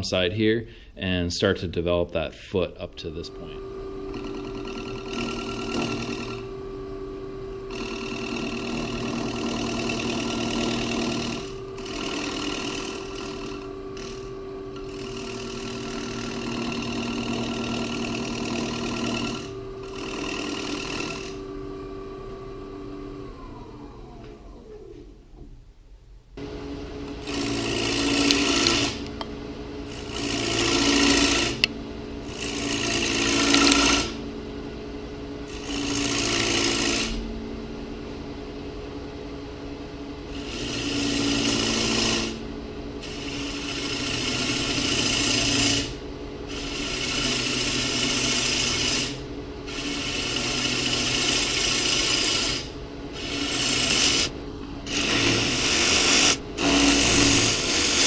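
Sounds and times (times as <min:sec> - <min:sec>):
wood lathe humming: 0:03.0 - 0:24.7, 0:26.4 - 0:37.4, 0:40.2 - 0:58.0
gouge cutting spinning wood: 0:03.1 - 0:23.5, 0:27.1 - 0:29.3, 0:29.9 - 0:34.2, 0:35.5 - 0:37.3, 0:40.3 - 0:42.4, 0:43.0 - 0:58.0.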